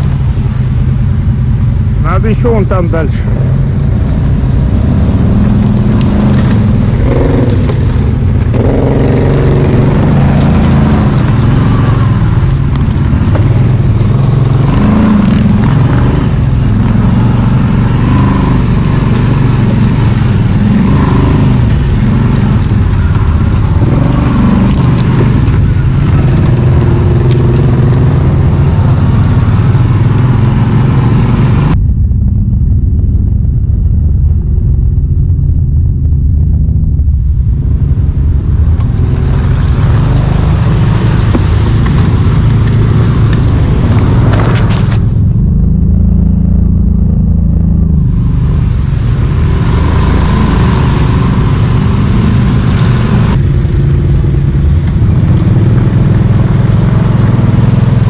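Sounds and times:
quad bike engine revving: 4.2 - 31.8, 38.8 - 46.4, 47.2 - 58.0.

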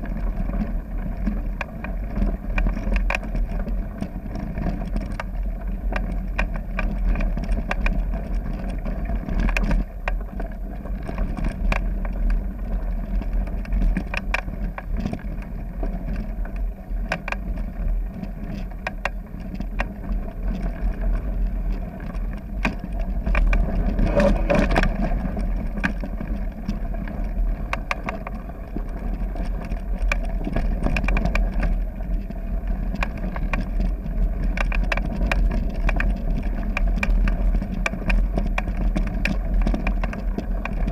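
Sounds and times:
bike clicks and rattles: 0.0 - 40.9
bike tyres rumbling on gravel: 0.0 - 40.9
wind on microphone: 20.4 - 40.9.

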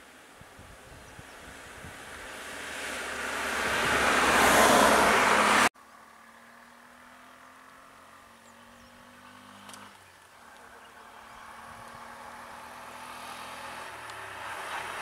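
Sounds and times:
van driving past: 1.5 - 15.0.

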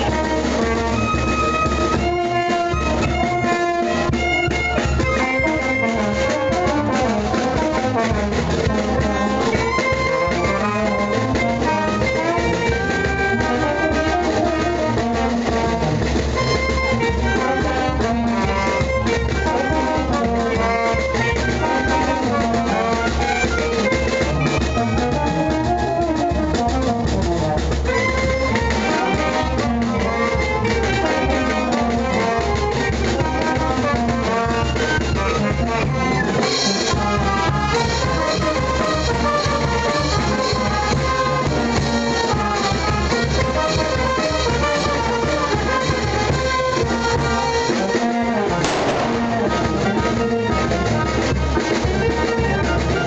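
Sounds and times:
brass band playing: 0.0 - 53.0.

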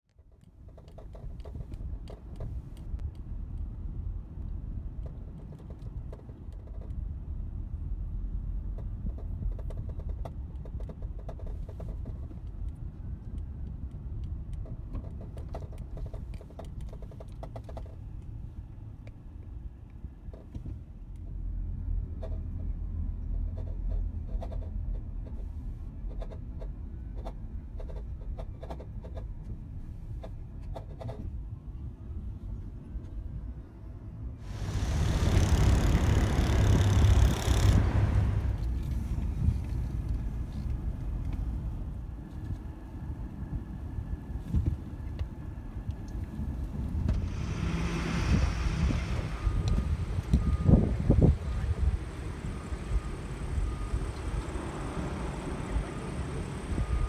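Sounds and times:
car road and engine rumble: 0.1 - 57.0.

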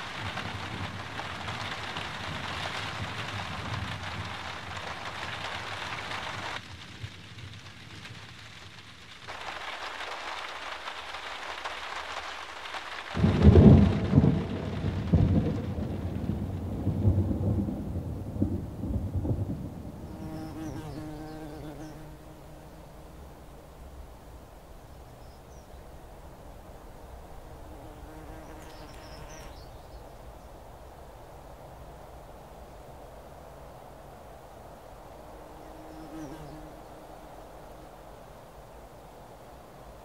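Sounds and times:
thunder rumbling: 0.0 - 12.0, 12.6 - 24.6
rain hissing: 0.0 - 27.7, 28.5 - 40.0.

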